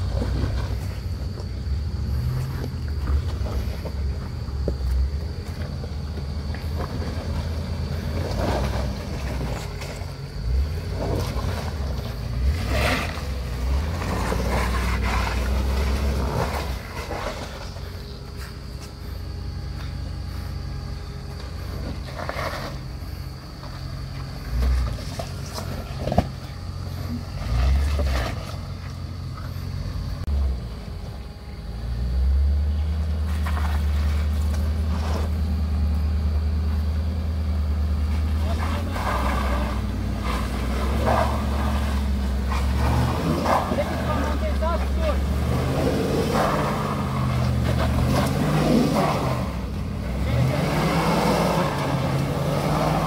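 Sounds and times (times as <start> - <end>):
truck engine at low revs: 0.0 - 53.0.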